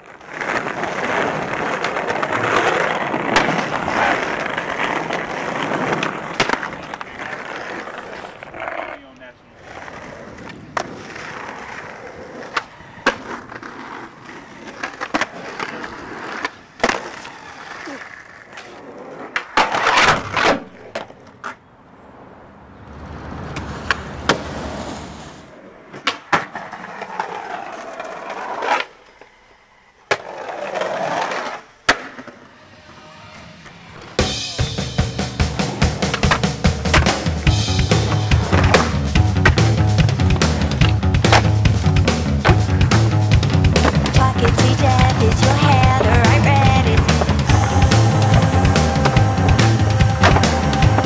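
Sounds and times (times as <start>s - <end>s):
skateboard wheels rolling: 0.0s - 51.0s
skateboard clacking on landings: 0.1s - 21.6s, 35.5s - 51.0s
music with a beat: 34.2s - 51.0s.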